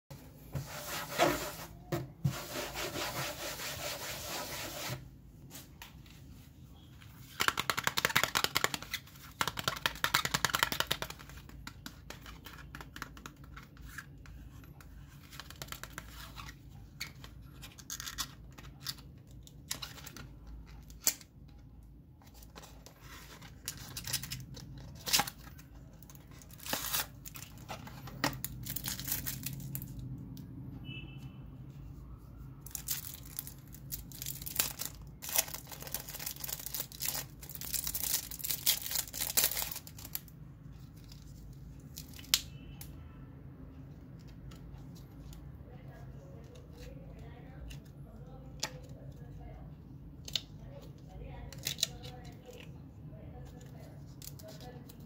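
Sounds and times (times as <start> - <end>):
cardboard packaging rustling and tearing: 22.3 - 29.9, 32.7 - 40.3.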